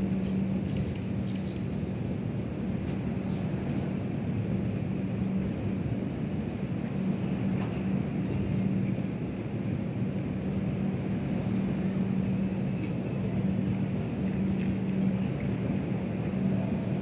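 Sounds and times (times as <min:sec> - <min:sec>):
passenger train rumbling past: 0:00.0 - 0:17.0.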